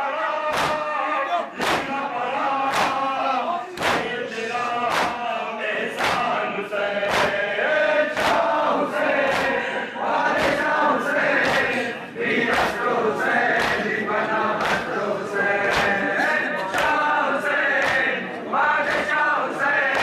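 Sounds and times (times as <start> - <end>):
men chanting in unison: 0.0 - 20.0
hands slapping chests: 0.4 - 0.9, 1.6 - 3.2, 3.8 - 4.2, 4.8 - 5.3, 5.9 - 7.4, 8.1 - 19.2, 19.8 - 20.0.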